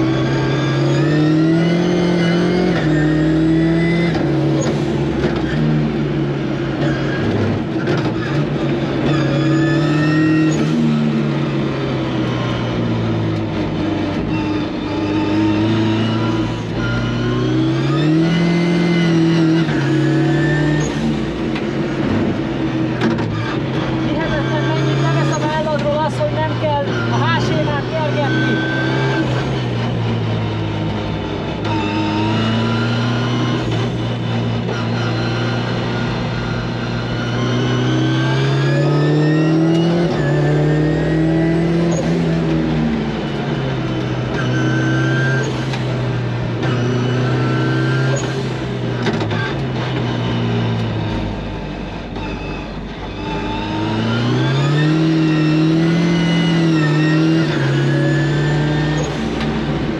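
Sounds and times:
car engine revving through gears: 0.0s - 59.9s.

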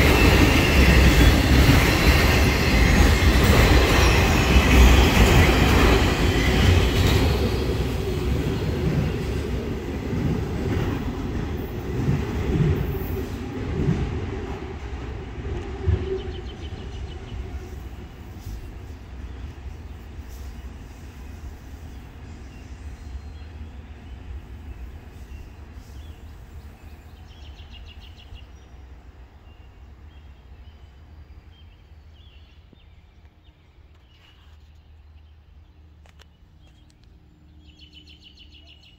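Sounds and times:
freight train rumble: 0.0s - 38.9s
birds chirping: 14.6s - 38.9s.

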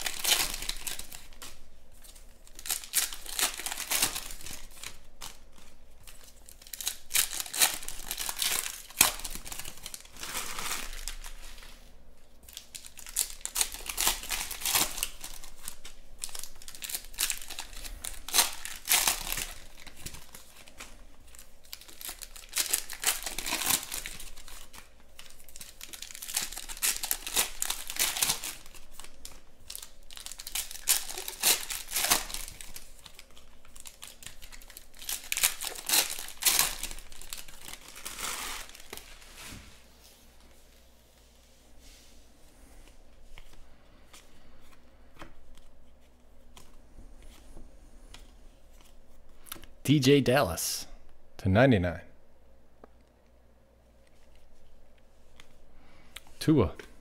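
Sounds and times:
foil wrappers crinkling and tearing: 0.0s - 40.0s.

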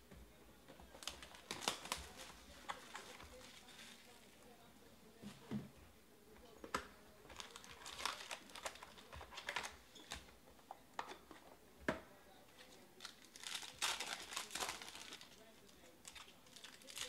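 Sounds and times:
card packs tapping and clicking: 0.9s - 3.5s, 6.7s - 10.3s
foil wrappers crinkling: 0.9s - 4.4s, 7.3s - 10.2s, 12.6s - 17.0s.

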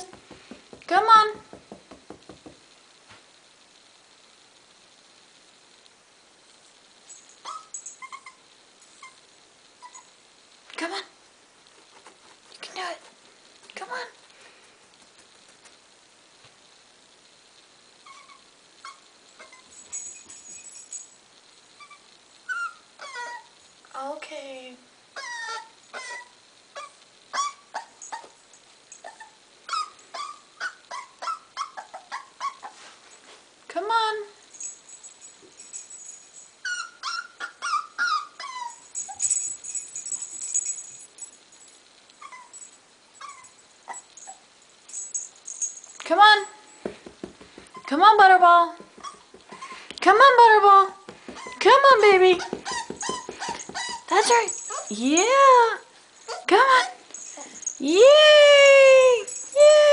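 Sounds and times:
puppy whining: 7.4s - 10.2s, 18.0s - 19.9s, 21.8s - 23.6s, 25.2s - 32.9s, 36.6s - 39.5s, 42.2s - 44.5s, 47.6s - 48.0s, 48.8s - 50.0s, 51.2s - 55.0s, 56.2s - 59.9s.

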